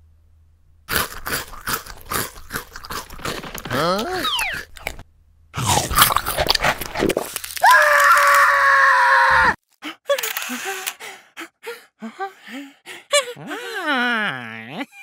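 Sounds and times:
noisy clatter: 3.0 - 4.1
squeaky gibberish syllables: 3.7 - 5.0, 13.4 - 15.0
high-pitched cartoon voice screaming: 7.6 - 9.6.

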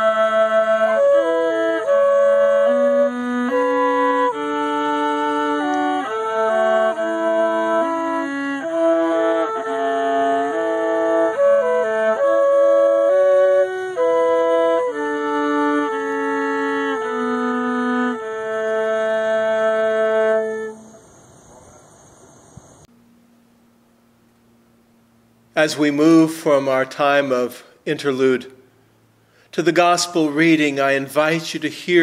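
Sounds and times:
flute and viola duet: 0.0 - 21.0, 29.6 - 32.0.

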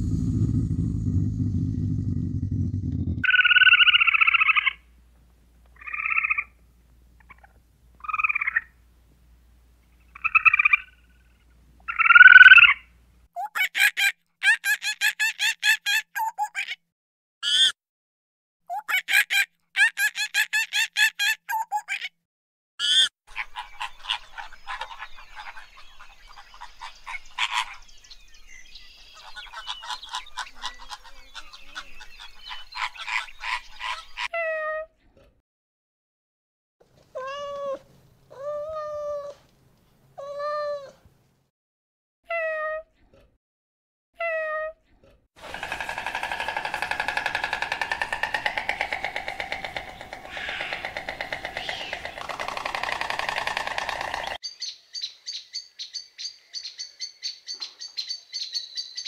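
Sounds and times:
cat meowing: 37.2 - 39.4
flamingos honking and gabbling: 45.5 - 54.4.

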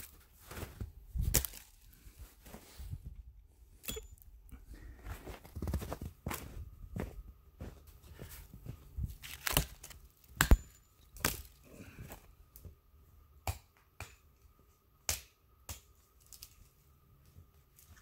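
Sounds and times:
twigs crackling: 1.3 - 2.0, 9.1 - 10.4
hatchet chopping branches: 9.2 - 11.5.

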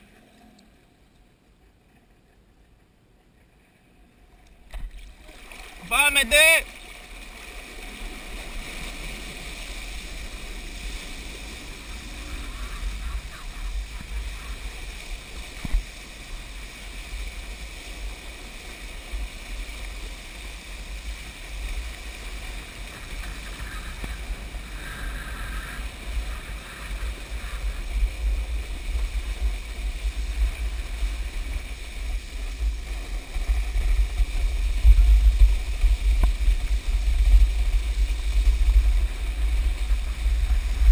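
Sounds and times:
water rushing around skis: 3.4 - 40.9
wind buffeting microphone: 22.5 - 40.9.

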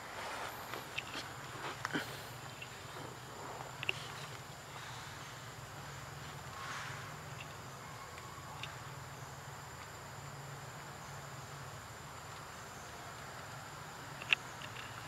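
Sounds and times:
faint ticks: 6.5 - 10.0, 12.2 - 15.0.

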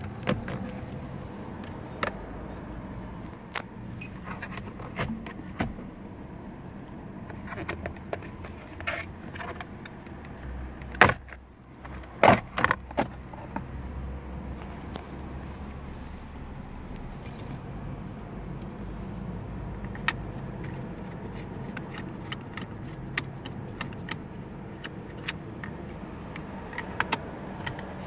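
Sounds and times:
plastic parts clicking and rattling: 19.9 - 28.0.

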